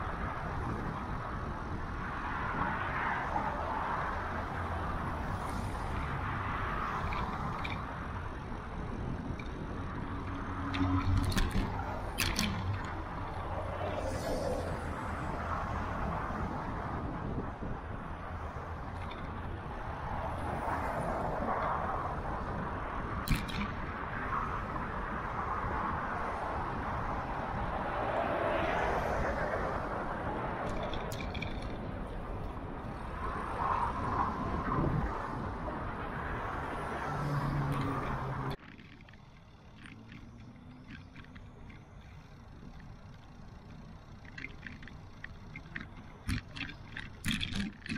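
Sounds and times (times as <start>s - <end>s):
cars and trucks driving past: 0.0s - 47.9s
city traffic noise: 0.0s - 47.9s
wind on camera microphone: 11.1s - 39.1s.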